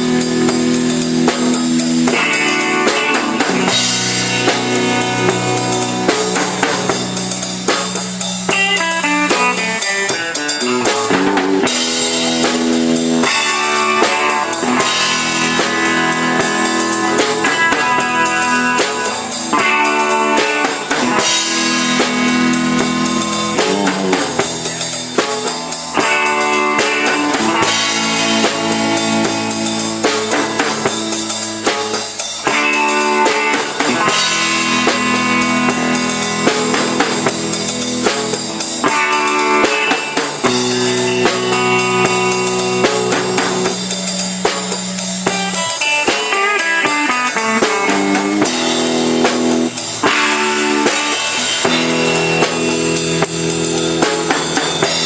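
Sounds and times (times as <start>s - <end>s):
drum kit: 0.0s - 55.0s
electric guitar chords ringing: 0.0s - 55.0s.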